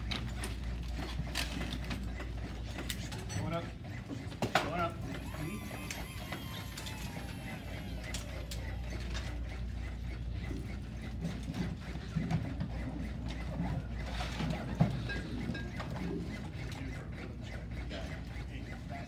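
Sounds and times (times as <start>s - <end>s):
chest compression device whirring: 0.0s - 19.0s.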